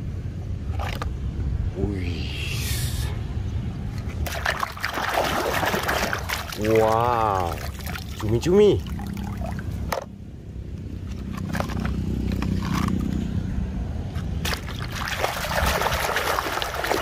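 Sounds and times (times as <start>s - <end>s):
low rumble: 0.0s - 4.3s
muddy water splashing: 0.6s - 1.3s, 4.0s - 10.0s, 11.0s - 13.2s, 14.2s - 17.0s.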